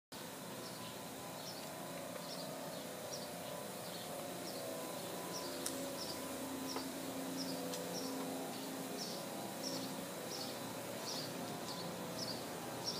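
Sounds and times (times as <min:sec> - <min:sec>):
steady low hum: 0:00.2 - 0:12.9.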